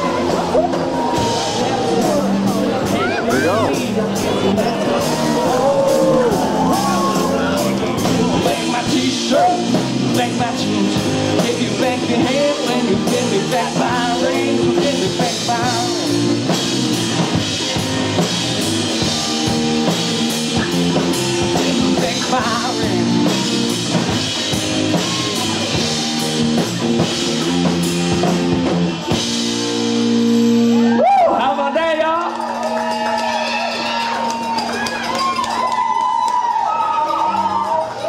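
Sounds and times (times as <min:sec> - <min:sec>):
electric guitar: 0:00.0 - 0:31.3
drum kit: 0:00.0 - 0:31.7
bass guitar: 0:00.0 - 0:38.0
person singing: 0:01.7 - 0:16.4, 0:21.1 - 0:23.7.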